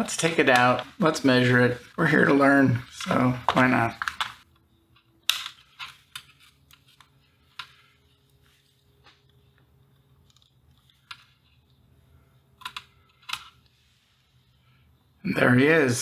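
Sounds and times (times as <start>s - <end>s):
faint steady hum: 0.0s - 16.0s
small clicks and crackles: 2.9s - 11.8s.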